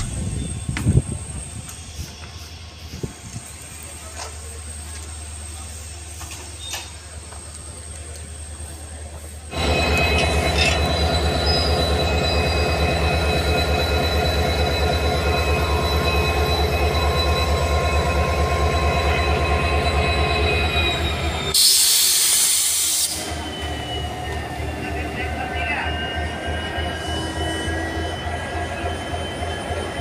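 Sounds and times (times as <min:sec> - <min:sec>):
diesel locomotive engine throb: 0:00.0 - 0:30.0
loud hiss: 0:21.6 - 0:23.3.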